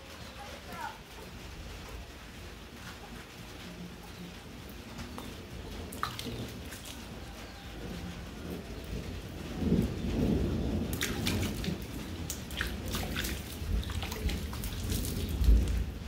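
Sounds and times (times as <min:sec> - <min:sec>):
rain falling: 0:00.0 - 0:16.0
sharp raindrop taps: 0:04.6 - 0:07.2, 0:09.6 - 0:16.0.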